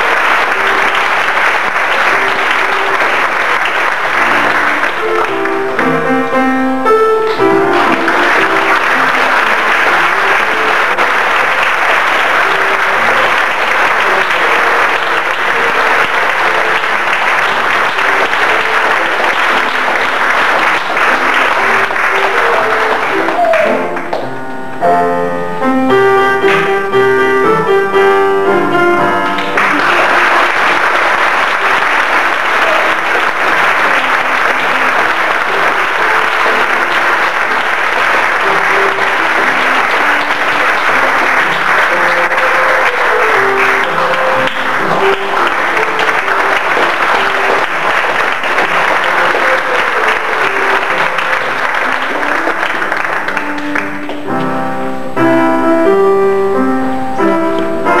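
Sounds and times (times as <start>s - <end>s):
audience applause: 0.0s - 6.1s, 7.3s - 24.3s, 29.0s - 55.1s
piano playing: 0.0s - 58.0s.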